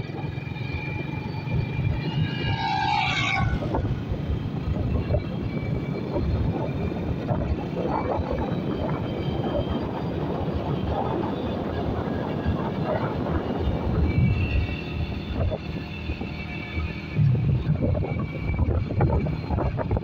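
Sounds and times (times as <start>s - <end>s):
motorcycle engine running: 0.0s - 2.6s
wind buffeting microphone: 0.0s - 20.0s.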